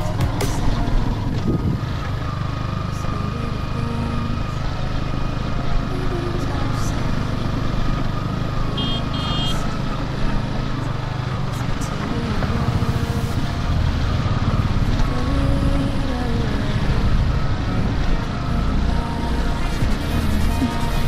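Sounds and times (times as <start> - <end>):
motorcycle engine running: 0.0 - 21.0
short high beeps: 8.8 - 9.6.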